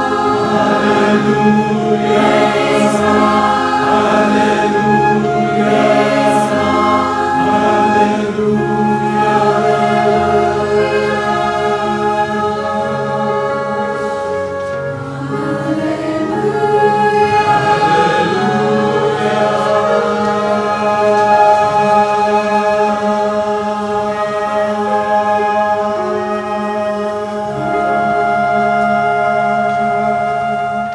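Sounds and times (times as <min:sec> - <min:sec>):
mixed choir singing: 0:00.0 - 0:30.9.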